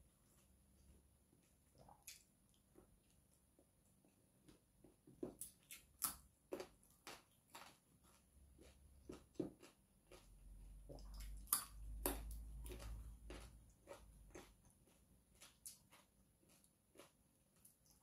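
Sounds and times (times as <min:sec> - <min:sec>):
wet chewing and lip-smacking: 0:05.3 - 0:18.0.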